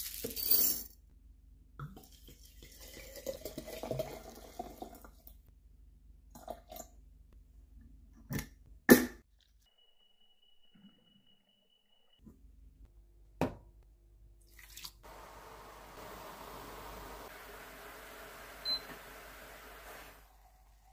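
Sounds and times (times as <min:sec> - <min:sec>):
liquid pouring and gurgling: 0:01.8 - 0:05.5.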